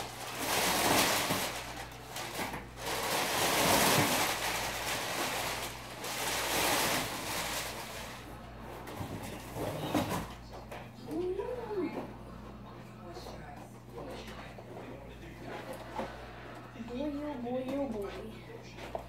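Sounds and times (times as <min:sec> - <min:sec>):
packing paper rustling: 0:00.0 - 0:08.4.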